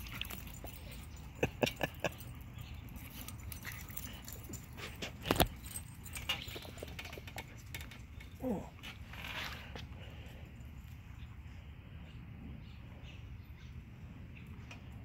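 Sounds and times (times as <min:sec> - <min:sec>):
dogs playing clicks and knocks: 0:00.0 - 0:08.4.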